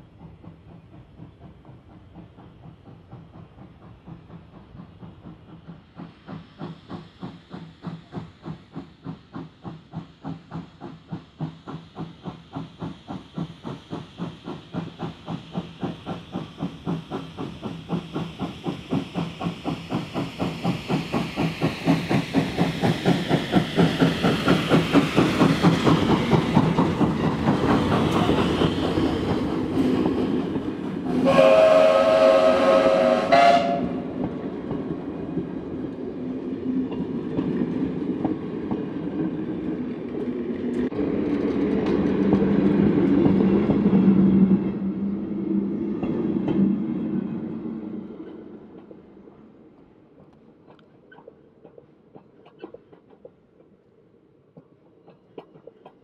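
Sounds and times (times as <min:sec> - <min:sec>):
steam locomotive chuffing: 0:00.0 - 0:53.8
train wheels clattering on rails: 0:00.0 - 0:53.9, 0:54.5 - 0:56.0
steam whistle: 0:31.1 - 0:34.1.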